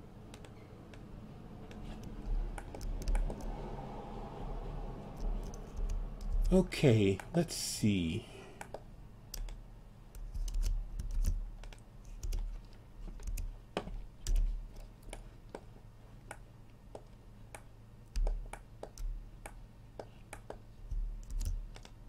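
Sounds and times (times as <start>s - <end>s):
keyboard and mouse clicking: 0.3s - 1.1s, 1.7s - 3.6s, 5.2s - 6.6s, 8.6s - 12.5s, 13.1s - 13.5s, 14.2s - 15.7s, 16.3s - 22.0s.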